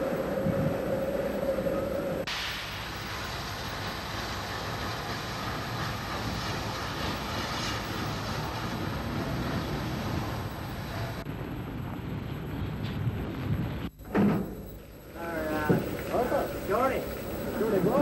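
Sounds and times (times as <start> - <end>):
steam locomotive hissing: 0.0 - 11.3.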